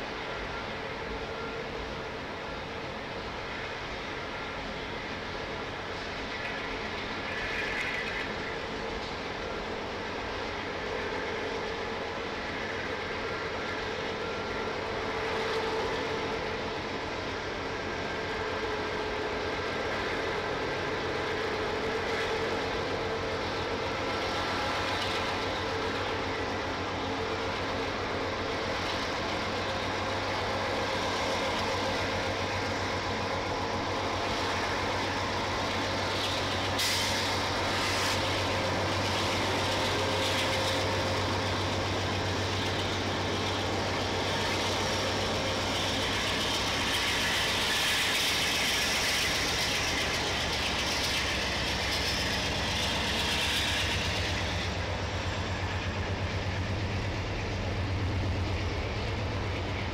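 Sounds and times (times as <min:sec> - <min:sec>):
diesel locomotive engine hum: 0:00.0 - 0:59.9
freight cars rumbling over rails: 0:00.0 - 0:59.9
bright hiss: 0:28.8 - 0:59.8.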